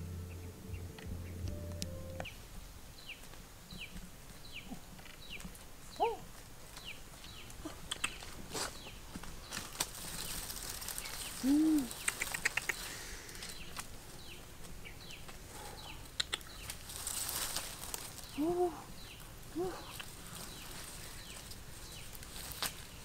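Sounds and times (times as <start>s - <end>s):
small birds chirping: 0.0s - 23.0s
quick run of clicks: 11.9s - 13.9s, 16.1s - 16.8s.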